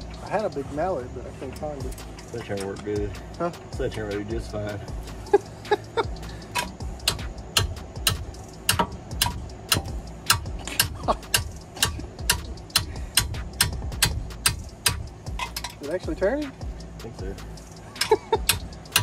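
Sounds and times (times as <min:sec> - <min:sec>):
hammer blows on metal: 0:06.5 - 0:15.7.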